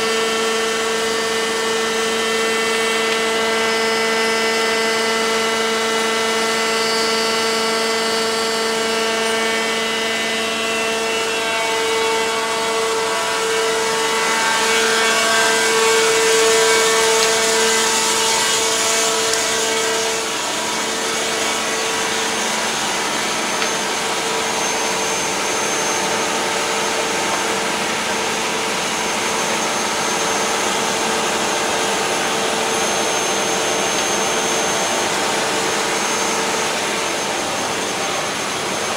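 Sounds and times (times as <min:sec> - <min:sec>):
hydraulic machinery whining drone: 0:00.0 - 0:38.9.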